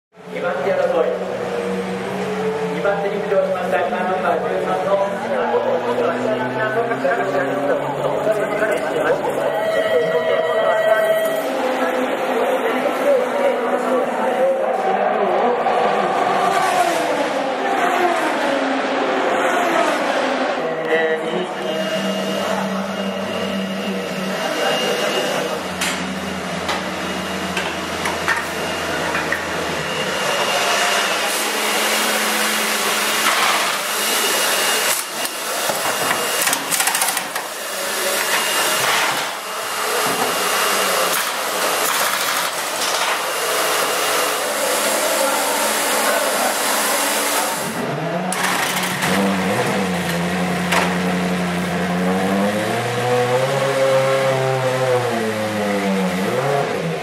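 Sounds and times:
machine whirring: 15.6s - 57.0s.

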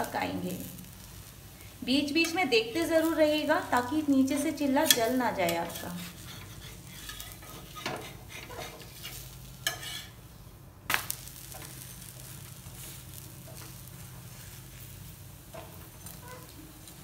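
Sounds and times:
pancake sizzling in oil: 0.0s - 17.0s
metal spatula scraping pan: 4.3s - 10.2s.

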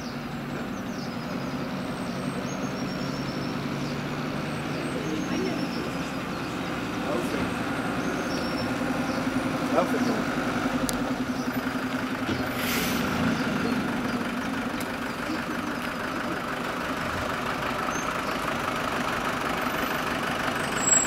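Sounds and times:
fire engines running slowly: 0.0s - 21.0s
brief hiss: 12.5s - 13.1s.

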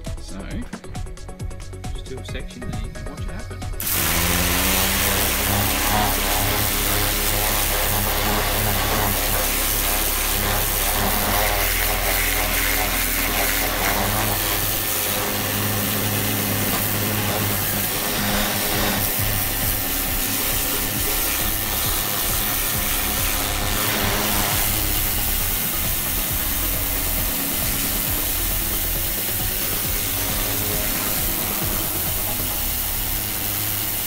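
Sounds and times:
pressure washer motor hum: 3.6s - 34.0s
water jet hissing on wheel: 3.8s - 34.0s.

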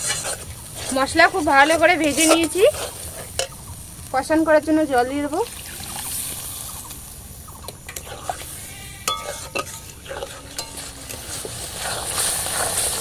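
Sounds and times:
metal spatula scraping pan: 0.0s - 3.6s, 7.9s - 13.0s
water boiling and sizzling: 0.0s - 13.0s.

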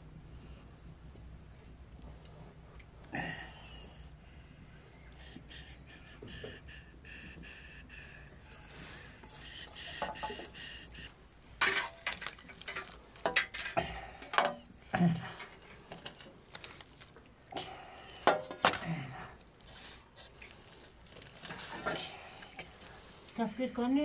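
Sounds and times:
kitchen dishes clattering: 11.6s - 14.7s.

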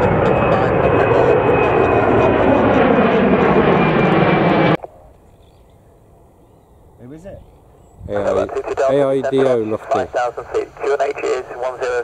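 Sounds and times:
jet airliner engine whine: 0.0s - 4.8s.

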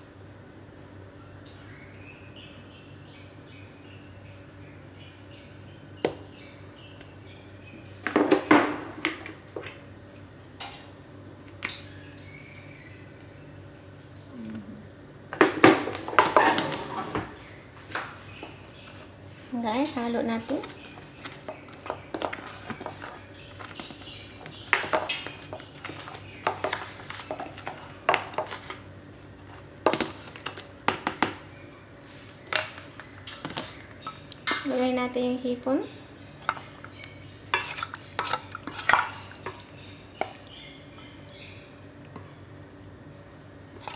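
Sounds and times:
containers and utensils clinking: 36.4s - 40.4s.

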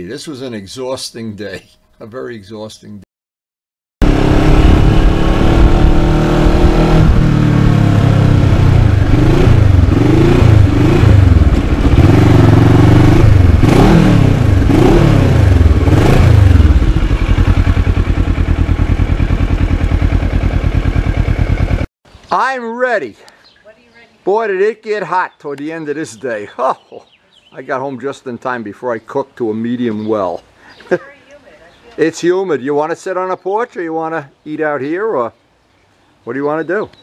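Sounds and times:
motorcycle engine revving and idling: 4.0s - 21.9s.

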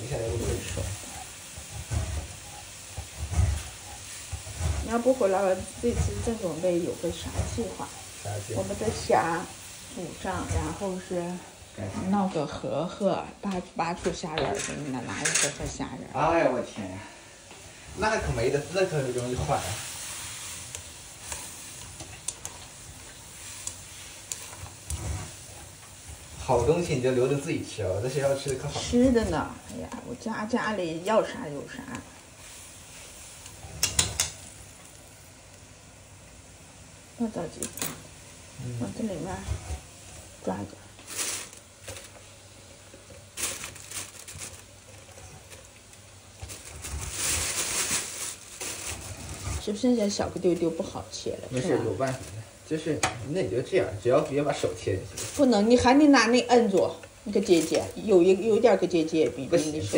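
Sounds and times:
water boiling in a pan: 0.0s - 59.9s
utensil clicking in a pan: 20.7s - 25.0s, 33.4s - 34.9s
plastic bag crinkling: 40.5s - 42.4s, 43.0s - 49.7s, 55.1s - 55.7s, 57.2s - 58.2s.

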